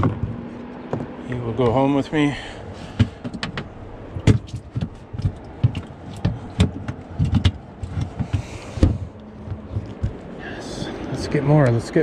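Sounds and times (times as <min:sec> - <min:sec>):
fish thumping in plastic tank: 0:02.9 - 0:10.2.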